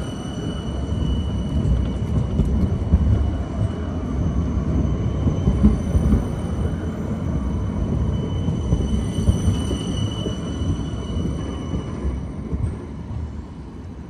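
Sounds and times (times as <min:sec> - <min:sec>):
train low rumble: 0:00.0 - 0:14.0.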